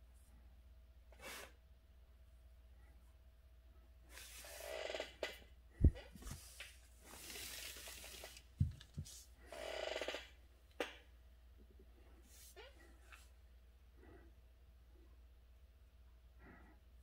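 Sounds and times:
paper rustling swishes: 6.1s - 9.3s.

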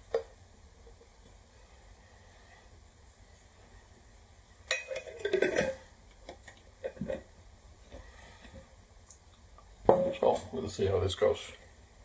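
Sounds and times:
glass jar clinks and scrapes: 4.7s - 5.8s.

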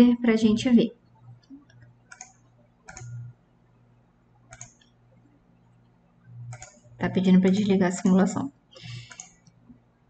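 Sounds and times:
faint low hum: 0.0s - 10.0s
computer mouse clicking: 1.3s - 3.3s, 4.5s - 5.0s, 6.5s - 8.2s, 8.8s - 9.6s.

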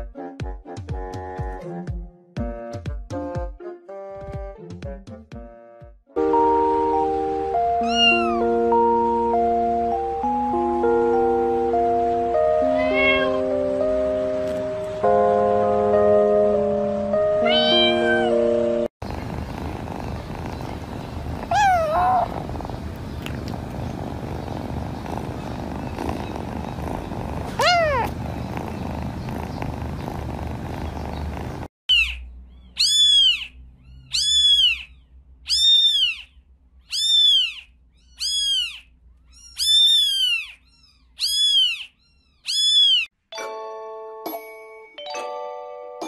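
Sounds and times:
kitten mewing: 7.8s - 8.4s, 19.2s - 31.6s
cat purring: 19.0s - 31.7s.

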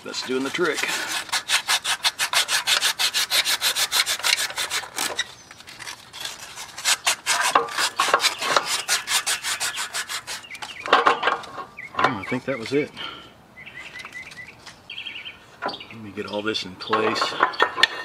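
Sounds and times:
abrasive strip rasping on metal: 0.0s - 10.7s.

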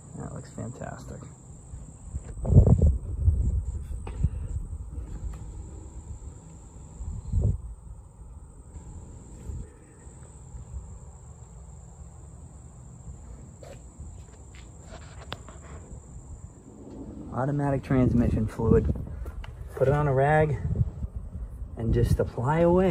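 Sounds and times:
insects chirring: 0.0s - 22.9s
low rumble: 16.2s - 19.6s.

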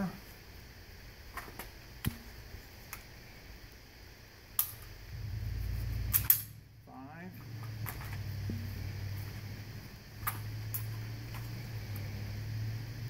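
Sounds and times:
low rumble of movement: 5.0s - 13.0s.

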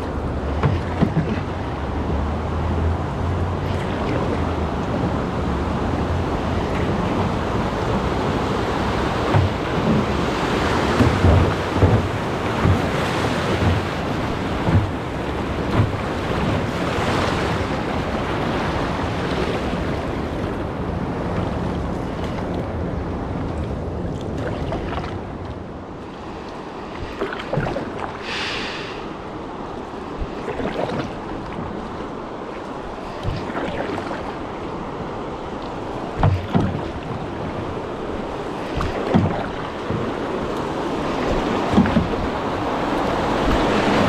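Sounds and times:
wind buffeting microphone: 0.0s - 25.9s
water rushing: 0.0s - 44.0s
low thumps: 10.9s - 16.2s.

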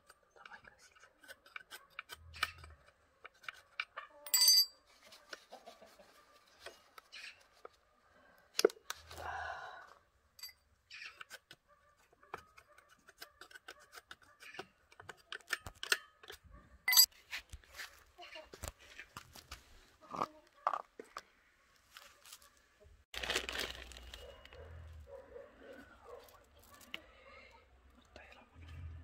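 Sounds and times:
metal parts clinking on concrete: 4.2s - 4.8s, 10.4s - 10.6s, 15.3s - 17.1s.

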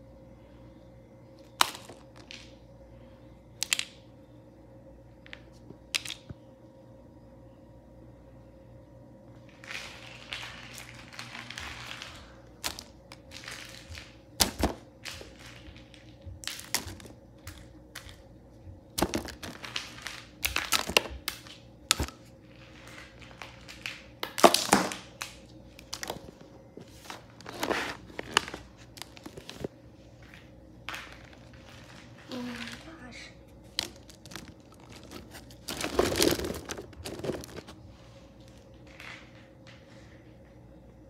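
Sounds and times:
plastic figures clattering in a box: 33.8s - 37.8s.

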